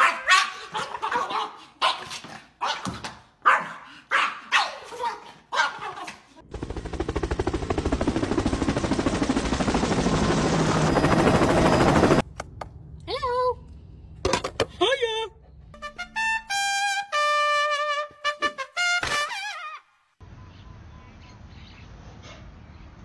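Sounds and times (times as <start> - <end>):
small dog barking: 0.0 - 6.2.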